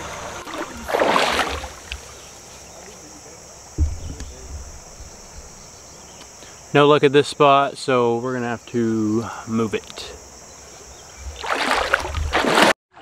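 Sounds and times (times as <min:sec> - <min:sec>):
rush of water: 0:00.0 - 0:01.9
insects chirring: 0:00.0 - 0:12.7
camera handling thump: 0:03.8 - 0:05.6.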